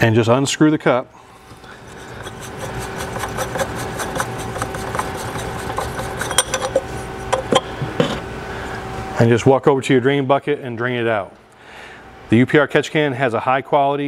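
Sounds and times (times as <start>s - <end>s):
threads scraping while unscrewing: 1.4s - 8.2s.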